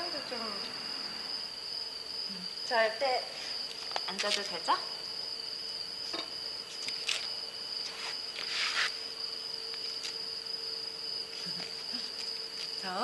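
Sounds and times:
crickets trilling: 0.0 - 13.0
soft rustles: 6.7 - 9.0.

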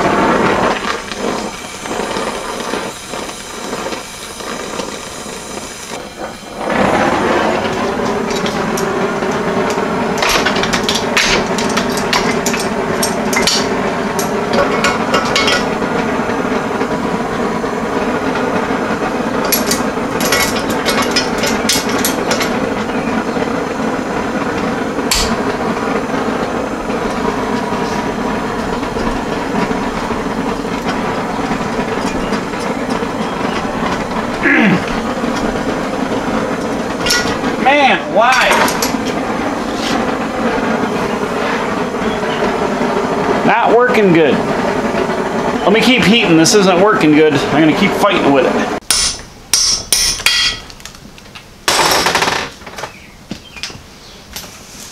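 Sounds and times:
gas torch flame hissing: 0.0 - 54.9
sharp metal knock: 48.8 - 50.7.

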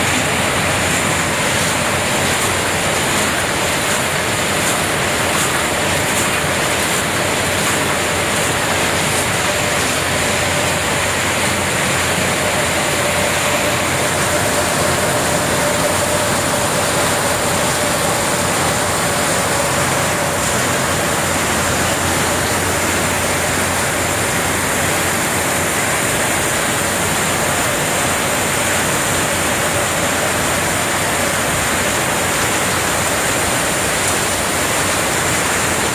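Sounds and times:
conveyor machinery din: 0.0 - 35.9
rushing spray noise: 0.0 - 35.9.

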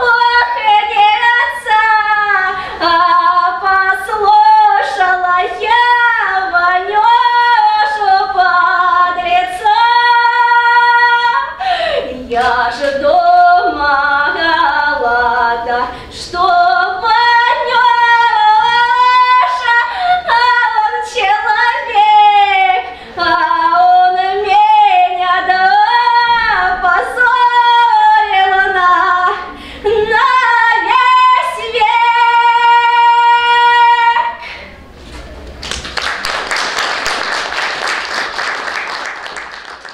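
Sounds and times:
woman singing unaccompanied: 0.0 - 34.4
audience applauding: 35.6 - 39.9.

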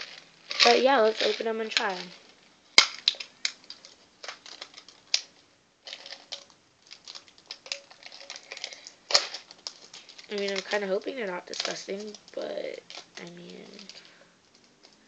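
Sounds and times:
plastic packaging crinkling: 0.0 - 15.0
packaging snap: 2.8 - 5.3, 5.9 - 15.0.

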